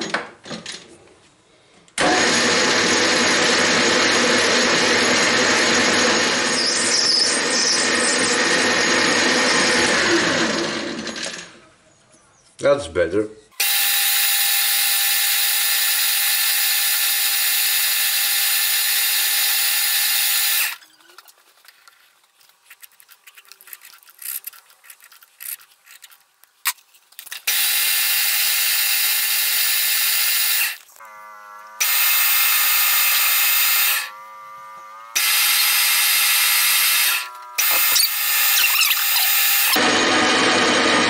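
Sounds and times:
metal lathe gear whine: 0:27.5 - 0:41.0.

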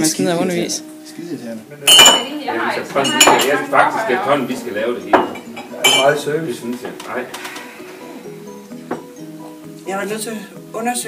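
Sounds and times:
crockery clinking: 0:01.8 - 0:07.6.

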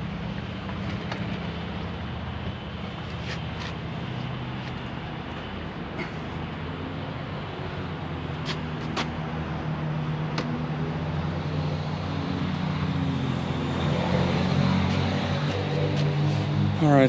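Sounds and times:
vehicle engine droning: 0:00.0 - 0:17.0.

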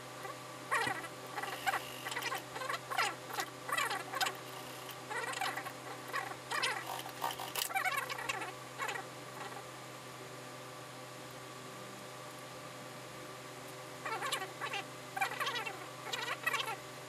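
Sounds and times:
motor low hum: 0:00.0 - 0:09.6
sewing machine stitching in spurts: 0:06.7 - 0:07.7.

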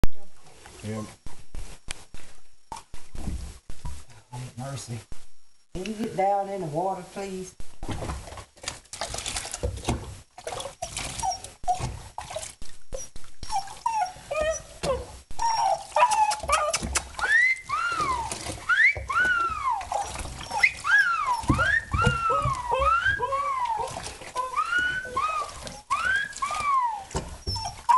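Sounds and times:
water splashing in a tub: 0:07.8 - 0:27.9
dog whining: 0:10.8 - 0:11.9, 0:13.0 - 0:27.9
knocks in a bathtub: 0:21.4 - 0:23.3.

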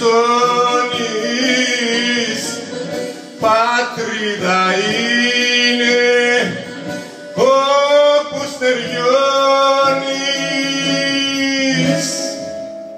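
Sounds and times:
man singing into microphone: 0:00.0 - 0:12.7
recorded backing music: 0:00.0 - 0:12.9.

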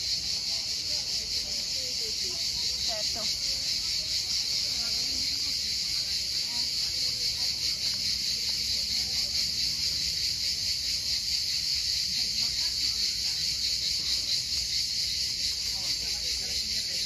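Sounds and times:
cicadas chorus: 0:00.0 - 0:17.0.

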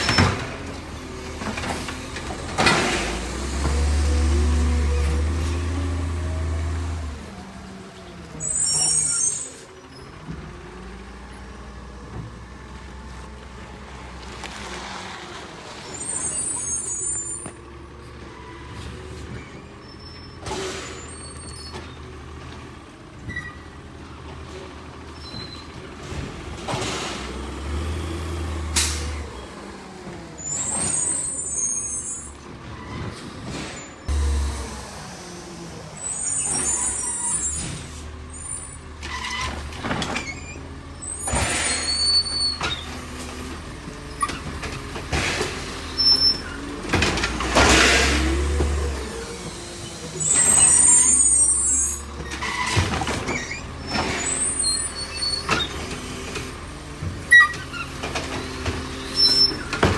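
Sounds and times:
garbage truck engine idling and revving: 0:00.0 - 0:59.9
air brakes hissing: 0:28.8 - 0:29.2, 0:41.0 - 0:42.6.

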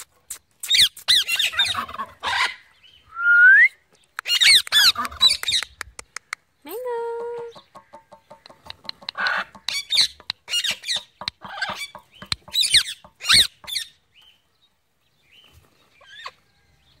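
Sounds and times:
parrot squawking and screeching: 0:00.7 - 0:02.7, 0:04.2 - 0:05.6, 0:09.1 - 0:13.9.

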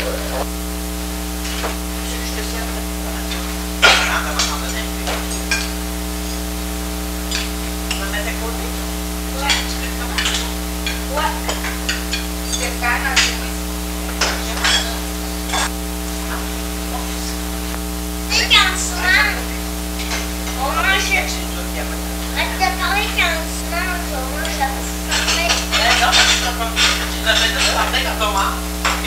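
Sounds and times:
steady electrical hum: 0:00.0 - 0:29.0
cutlery and dishes clinking: 0:03.3 - 0:05.8, 0:07.3 - 0:08.1, 0:09.5 - 0:13.5, 0:14.1 - 0:15.7, 0:24.4 - 0:29.0.

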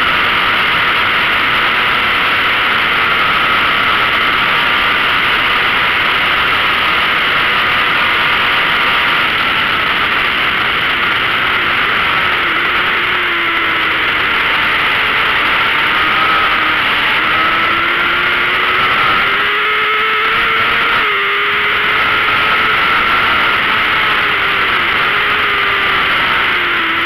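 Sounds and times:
motorcycle engine revving high: 0:00.0 - 0:27.0.

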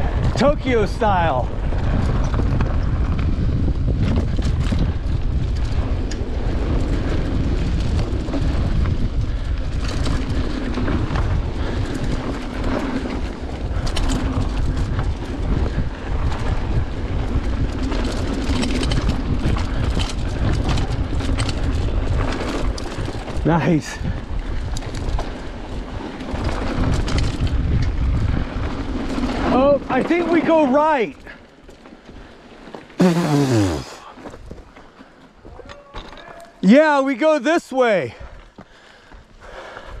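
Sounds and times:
wind buffeting microphone: 0:00.0 - 0:29.9
bike rattling and clicking: 0:00.0 - 0:33.0.

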